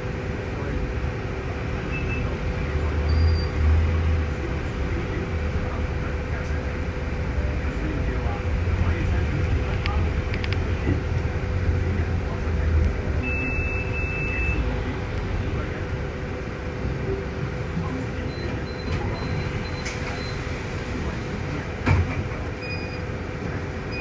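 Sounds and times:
bus engine and road noise: 0.0 - 24.0
faint high beeps: 13.2 - 14.6, 18.2 - 20.5.

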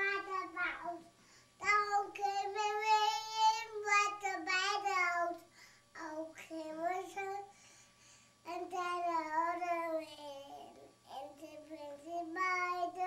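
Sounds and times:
child singing held notes: 0.0 - 7.5.

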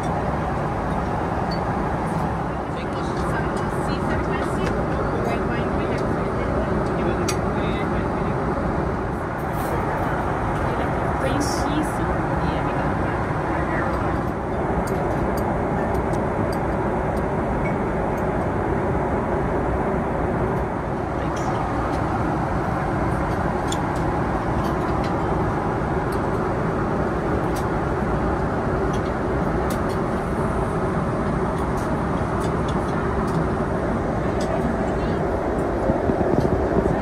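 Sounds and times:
airplane cabin engine and airflow noise: 0.0 - 37.0.

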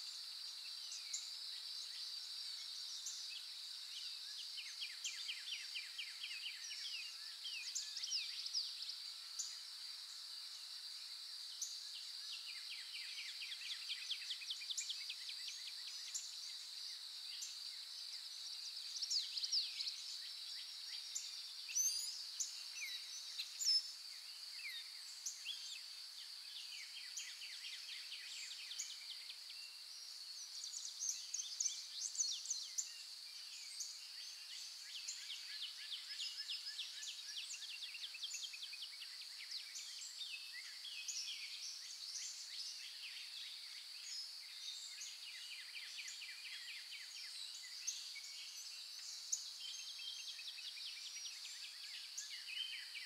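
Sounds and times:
small birds chirping: 11.5 - 53.0.

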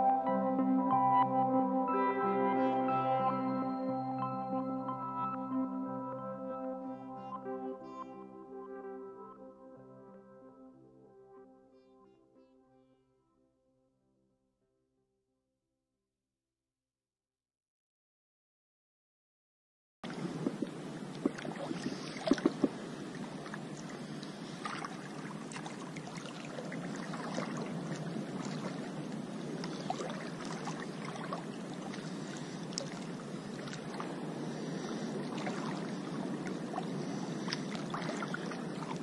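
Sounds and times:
water lapping and splashing: 20.0 - 39.0.

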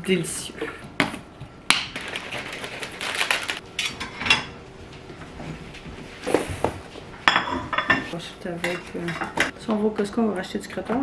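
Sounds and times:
plastic shaker bottle shaken: 2.0 - 3.6.

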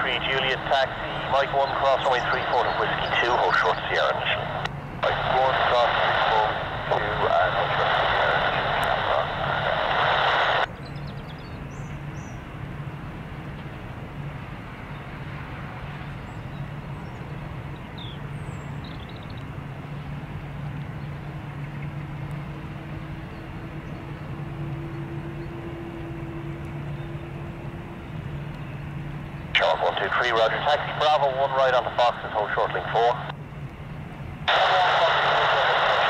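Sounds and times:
jet engines idling: 0.0 - 36.0.

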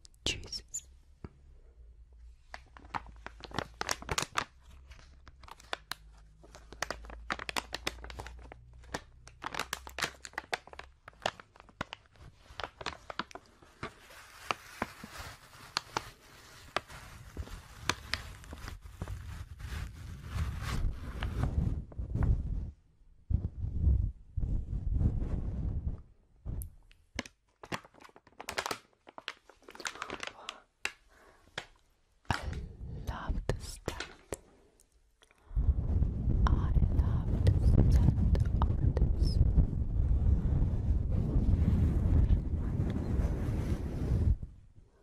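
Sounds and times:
plastic crinkling: 2.4 - 21.6, 26.9 - 32.6.

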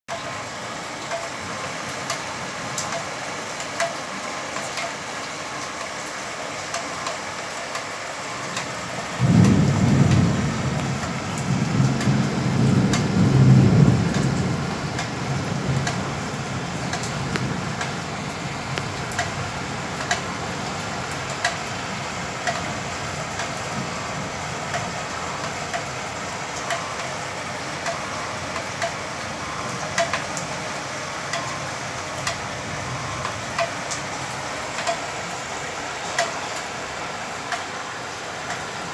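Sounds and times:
heavy rain falling: 0.1 - 38.9
floodwater rushing: 0.2 - 38.9.

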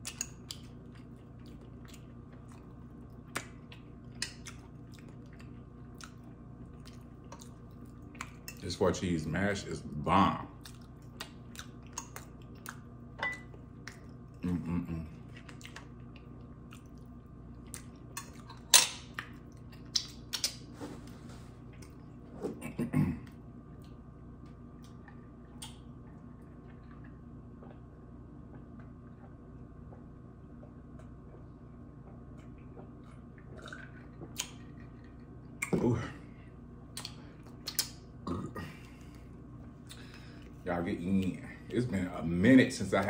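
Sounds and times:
chewing and mouth noises: 0.0 - 8.8, 10.3 - 35.9, 36.9 - 41.8.

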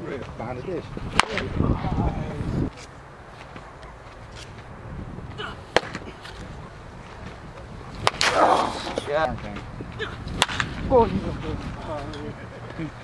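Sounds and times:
baseball bat cracks: 1.1 - 1.5, 5.7 - 6.5, 8.0 - 9.1, 10.0 - 10.8.

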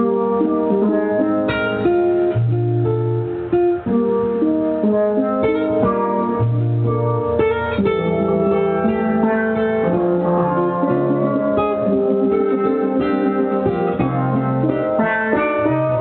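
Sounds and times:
plucked guitar melody: 0.0 - 16.0.

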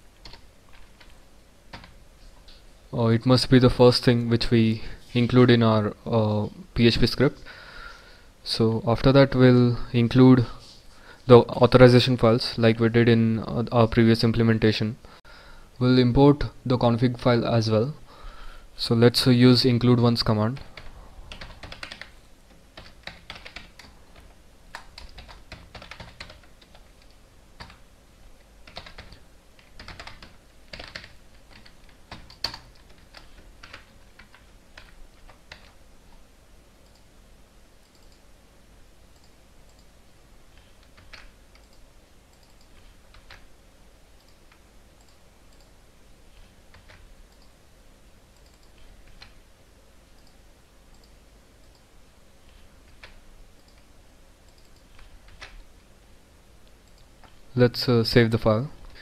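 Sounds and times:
keyboard typing: 0.2 - 2.0, 20.5 - 22.2, 22.8 - 27.8, 28.6 - 35.8, 40.6 - 43.5, 46.3 - 47.5, 48.3 - 49.4, 50.2 - 53.9, 54.5 - 55.6.

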